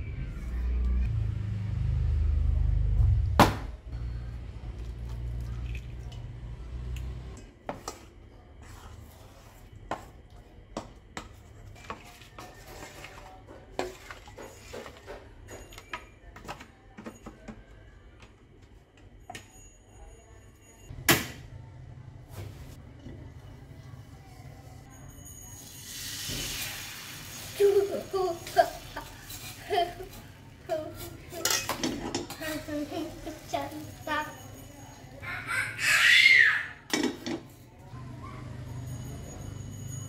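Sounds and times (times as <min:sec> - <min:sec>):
utensil stirring in metal bowl: 0:07.7 - 0:15.1, 0:26.5 - 0:34.4.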